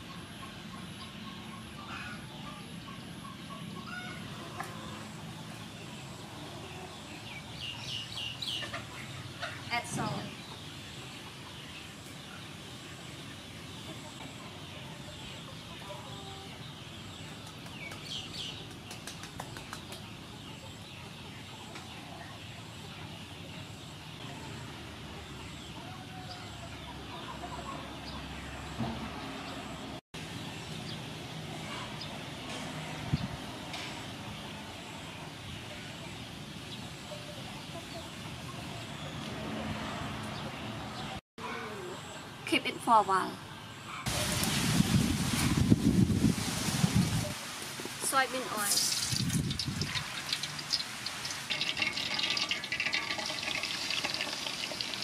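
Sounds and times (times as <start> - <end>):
chickens clucking: 0.0 - 29.8, 33.6 - 42.3
outdoor background noise: 0.0 - 55.0
background hiss: 44.1 - 52.1.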